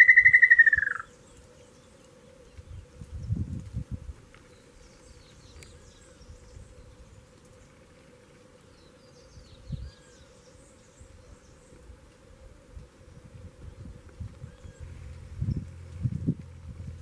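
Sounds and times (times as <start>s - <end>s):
small birds chirping: 0.0s - 3.6s, 4.4s - 12.0s, 13.0s - 16.1s
insect buzz: 0.0s - 16.4s.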